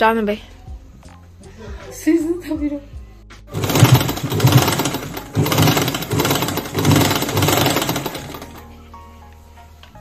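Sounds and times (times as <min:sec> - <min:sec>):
sewing machine clattering: 0:03.5 - 0:08.6.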